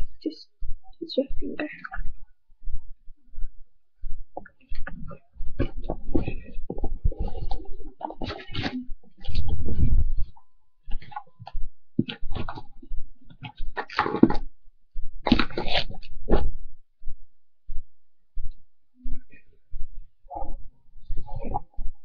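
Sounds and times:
handling noise rubbing and rustling: 4.4s - 14.6s.

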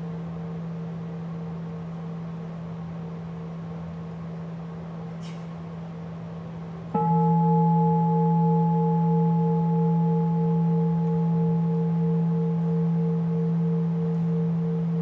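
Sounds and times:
singing bowl ringing: 6.9s - 15.0s.

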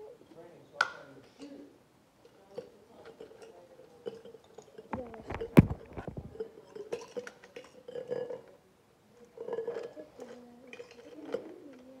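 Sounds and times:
hands handling metal tumbler: 5.0s - 6.4s.

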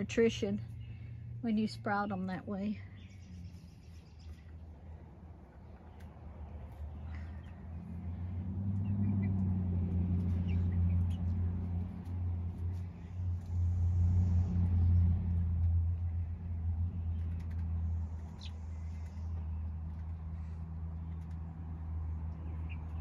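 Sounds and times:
low motor rumble: 0.0s - 23.0s.

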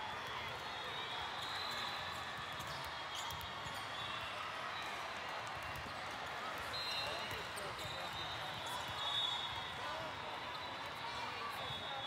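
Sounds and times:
murmur of voices in hall: 0.0s - 12.0s.

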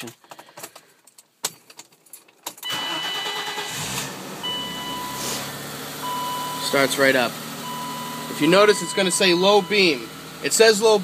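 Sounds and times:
keys clicking in ignition: 0.0s - 3.8s
car engine starting and idling: 2.6s - 11.0s
steady electronic tones: 6.0s - 10.2s.

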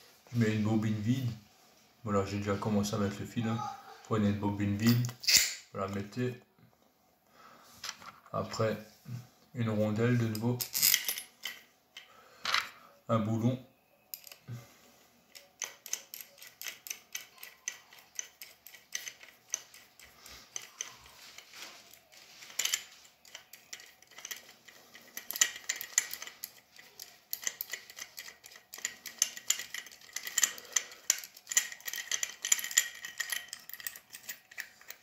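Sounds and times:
metal nut clicking on threaded screw: 15.3s - 21.2s, 22.5s - 35.0s.

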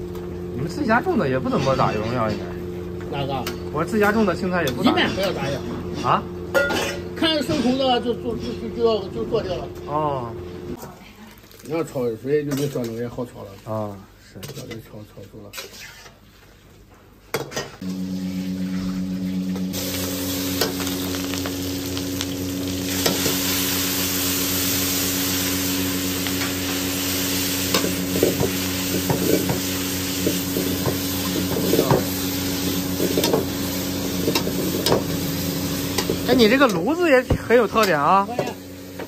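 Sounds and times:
metal spatula scraping wok: 15.4s - 16.4s
low hum: 17.8s - 36.3s
greens sizzling in hot oil: 17.8s - 39.0s.

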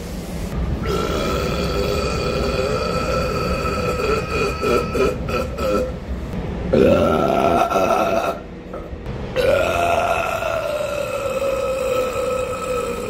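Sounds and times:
subway car whine and rumble: 0.0s - 13.0s
man burping loudly: 0.8s - 5.9s, 6.7s - 8.4s, 9.4s - 13.0s.

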